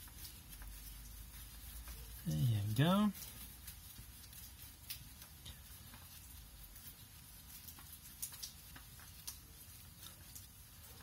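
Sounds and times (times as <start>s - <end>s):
faint clicks and taps: 0.0s - 11.0s.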